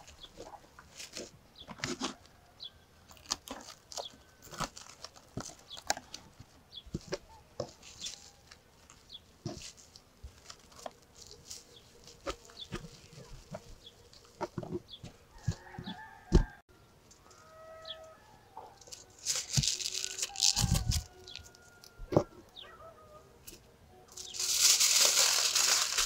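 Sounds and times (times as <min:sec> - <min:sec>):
aluminium foil crinkling: 0:03.1 - 0:14.6, 0:18.8 - 0:22.0, 0:24.1 - 0:26.0
cling film crackling: 0:18.8 - 0:21.6, 0:24.2 - 0:26.0.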